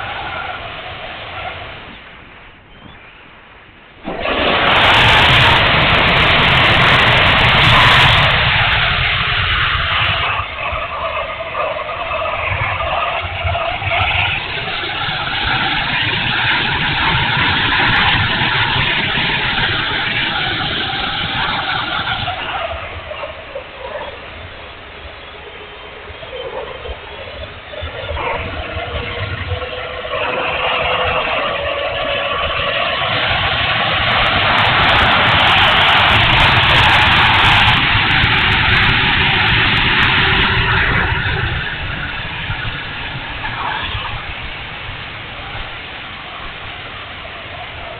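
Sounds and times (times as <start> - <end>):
model jet electric fan whine: 0.0 - 47.9
wind rumbling on microphone: 0.0 - 47.9.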